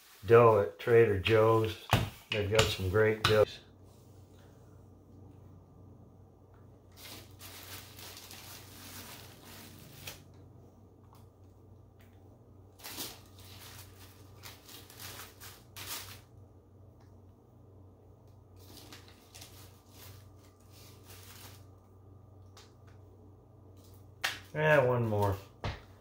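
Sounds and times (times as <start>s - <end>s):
low steady hum: 0.0s - 26.0s
paper rustling and crinkling: 6.9s - 10.4s, 12.8s - 16.3s, 18.6s - 21.8s.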